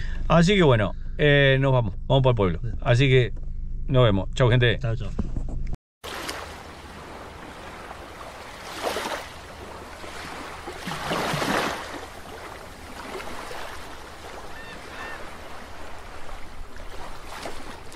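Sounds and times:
water-like whoosh: 6.0s - 17.9s.

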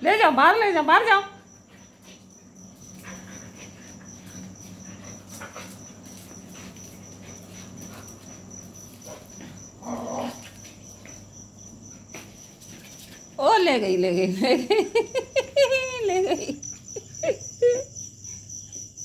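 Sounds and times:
cricket chirping: 0.0s - 19.0s
dogs scuffling on tiled floor: 1.0s - 13.9s.

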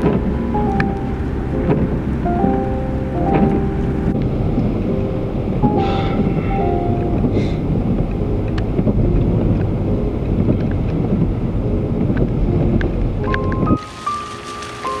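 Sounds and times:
car interior road rumble: 0.0s - 14.0s
wind buffeting microphone: 0.0s - 14.0s.

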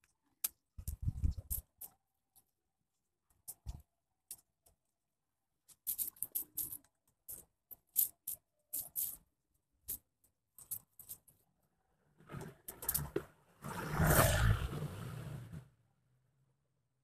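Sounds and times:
rough scraping: 12.2s - 15.7s.

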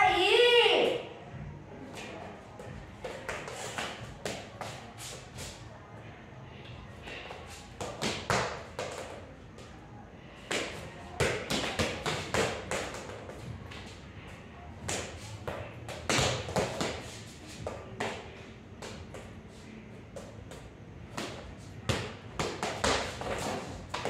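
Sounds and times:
ball thudding on tiled floor: 14.9s - 17.0s.

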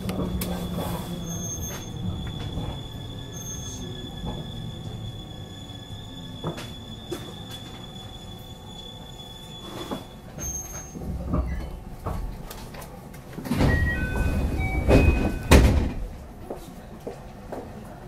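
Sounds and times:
train doors sliding open: 0.0s - 16.3s
heavy door thud: 13.5s - 16.2s.

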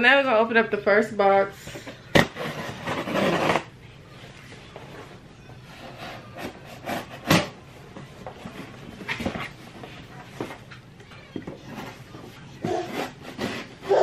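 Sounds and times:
cardboard rubbing and knocking: 2.2s - 3.7s, 11.6s - 14.0s
cardboard tearing: 2.2s - 3.7s.

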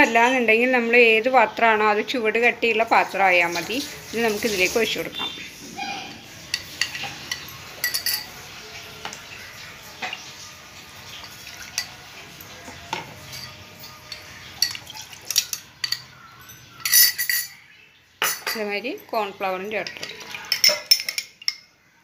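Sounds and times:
metal spoon clinking on glass bowl: 6.5s - 8.4s, 11.1s - 12.1s, 12.7s - 17.6s, 18.2s - 21.8s.

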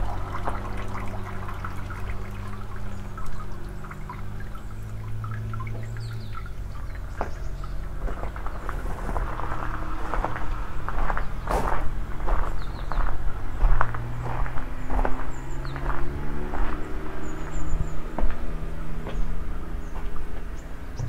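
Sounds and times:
low mechanical hum: 0.0s - 13.8s
water trickling and splashing: 0.0s - 21.0s.

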